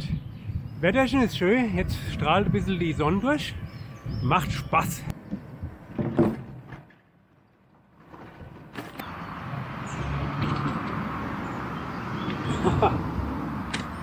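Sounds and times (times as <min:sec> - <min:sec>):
wind on microphone: 0:00.0 - 0:06.2
bicycle tyres rolling: 0:05.7 - 0:09.4.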